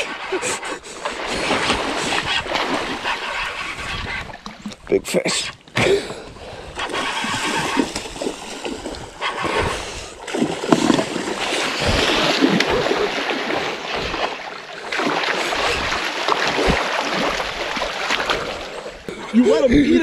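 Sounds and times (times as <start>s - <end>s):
fish thrashing and splashing: 0.0s - 4.9s, 6.2s - 19.1s
river water rushing: 6.8s - 19.0s.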